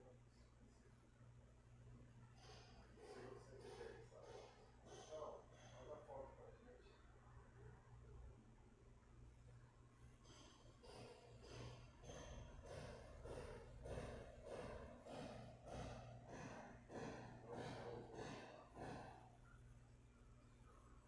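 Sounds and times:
quick faint breathing: 2.3 - 6.3, 10.2 - 19.5
low steady hum: 18.6 - 21.0.

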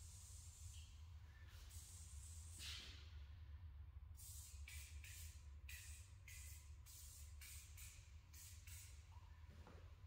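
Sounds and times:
faint hissing puffs: 0.0 - 3.3.

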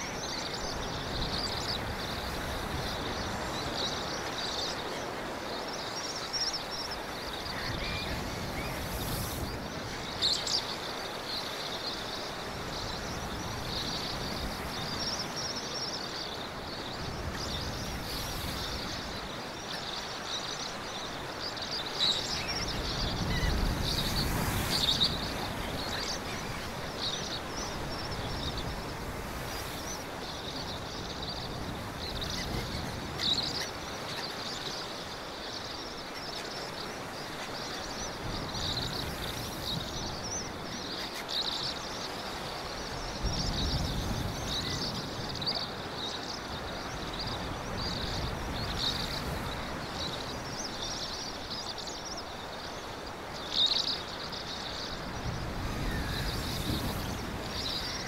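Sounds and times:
sea surf washing in: 55.0 - 58.0.

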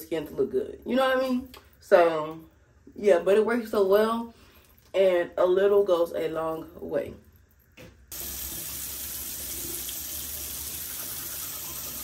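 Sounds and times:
water running from tap: 8.1 - 12.0.

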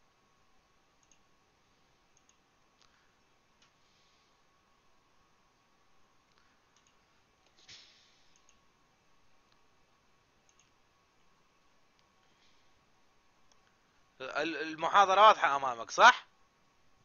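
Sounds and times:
faint computer mouse clicks: 1.0 - 1.3, 2.1 - 3.0, 6.3 - 7.6, 8.3 - 8.6, 10.5 - 11.3.

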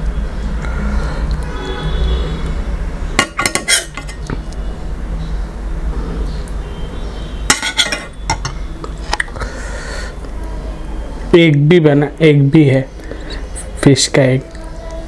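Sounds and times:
metal spoon clinking on bowl: 3.2 - 4.3, 7.5 - 8.6.

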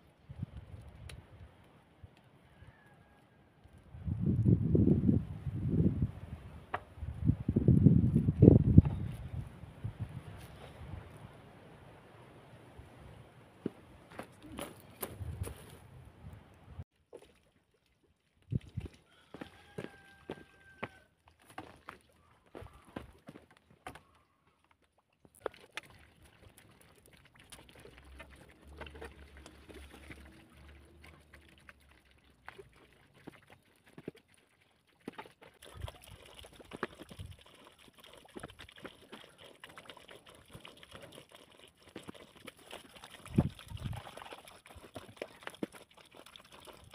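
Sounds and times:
water splashing in metal basin: 25.4 - 46.9.

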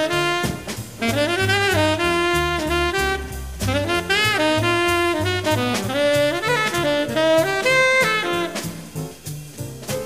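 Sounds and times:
tenor saxophone solo: 0.0 - 9.0
drums: 0.0 - 10.0
walking double bass: 0.0 - 10.0.

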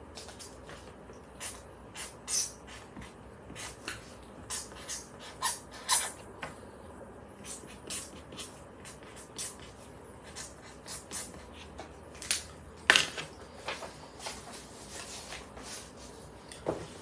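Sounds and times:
pen scratching on paper: 7.4 - 11.8.

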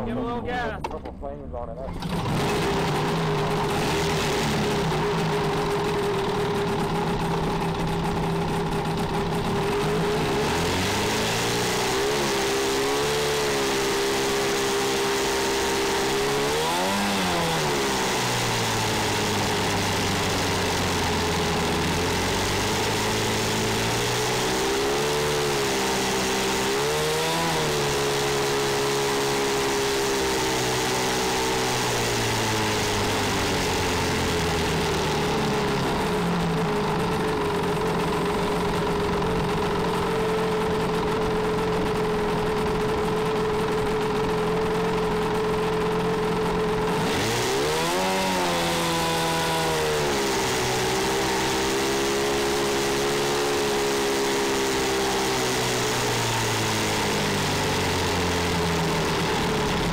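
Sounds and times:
race car engine idling: 0.0 - 10.8, 32.4 - 47.0, 57.0 - 59.9
engine throttle blips and revving: 0.0 - 59.9.

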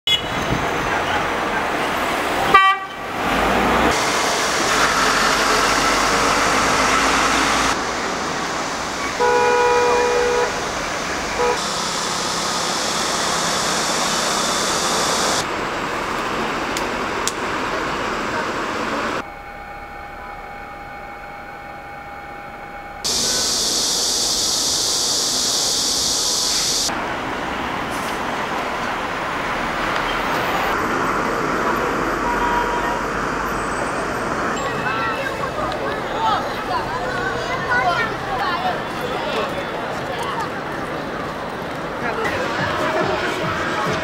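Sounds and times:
vehicle horn honking: 0.1 - 0.4, 2.5 - 3.0, 9.2 - 10.7, 11.3 - 15.4
cars and scooters running: 0.1 - 19.2, 23.0 - 44.0
steady machine hum: 10.7 - 15.5, 18.7 - 26.9.

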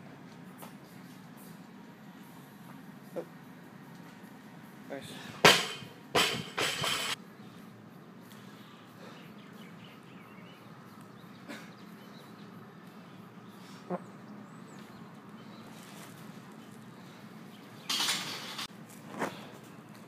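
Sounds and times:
birds chirping: 7.3 - 18.6.

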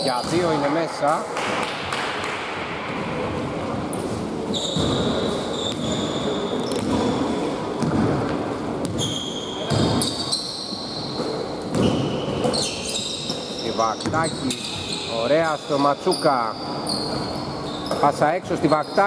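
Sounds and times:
sneakers squeaking: 0.0 - 0.8, 2.9 - 19.0
basketball bouncing on wooden floor: 4.7 - 6.0, 7.8 - 10.1.

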